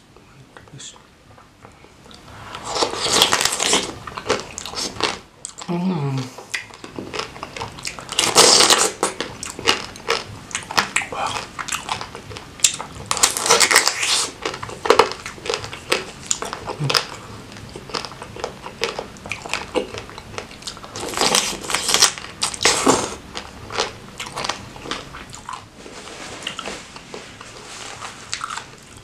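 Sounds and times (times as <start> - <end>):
wet biting and chewing: 2.1 - 5.7, 6.4 - 25.7, 28.3 - 29.0.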